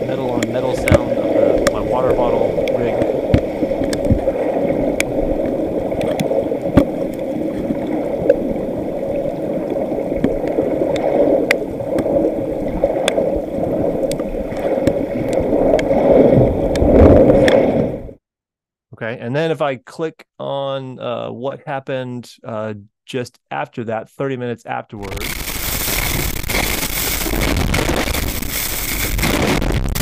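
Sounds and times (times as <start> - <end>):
underwater rumble of churning water: 0.0 - 18.2, 25.2 - 30.0.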